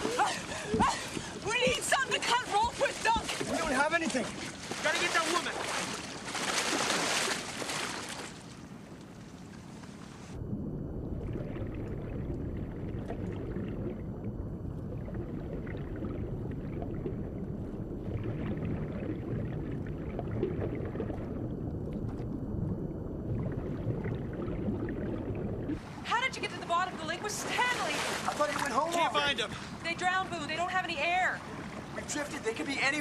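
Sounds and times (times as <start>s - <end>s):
diver's exhaled bubbles crackling: 10.0s - 26.0s
muffled underwater rumble: 10.0s - 26.0s.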